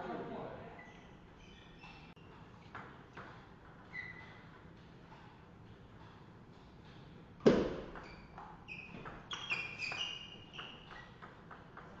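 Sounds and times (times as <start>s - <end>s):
shoes squeaking on floor: 0.7s - 2.4s, 3.7s - 4.6s, 7.7s - 11.6s.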